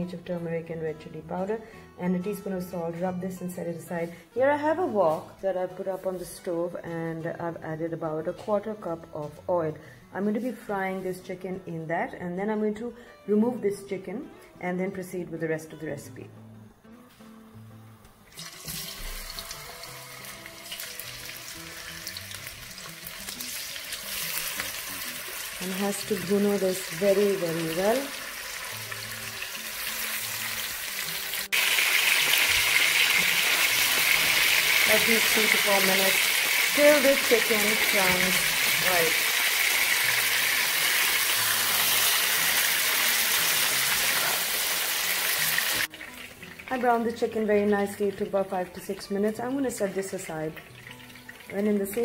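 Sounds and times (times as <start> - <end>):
chicken sizzling in hot oil: 18.3 - 52.0.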